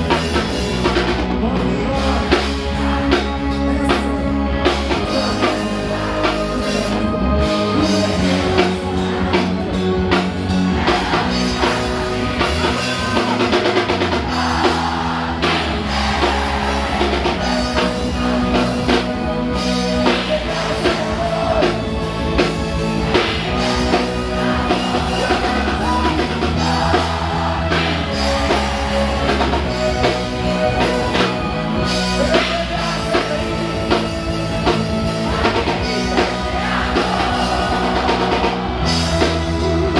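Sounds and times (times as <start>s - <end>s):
person singing: 0.0s - 22.5s, 23.1s - 39.9s
live rock band playing: 0.0s - 39.9s.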